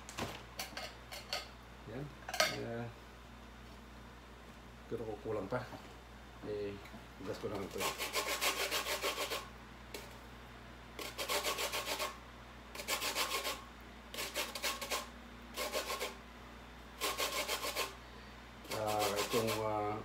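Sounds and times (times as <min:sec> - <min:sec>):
peel grated on metal grater: 0:07.6 - 0:09.5, 0:11.0 - 0:12.2, 0:12.8 - 0:16.2, 0:17.0 - 0:18.0, 0:18.7 - 0:19.8.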